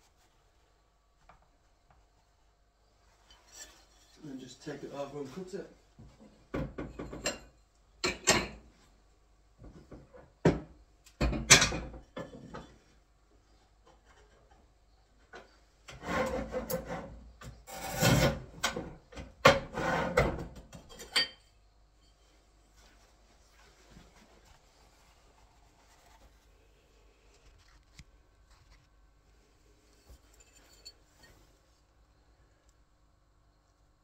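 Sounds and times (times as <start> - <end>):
knocks and clatters on tile: 6.5 - 8.6.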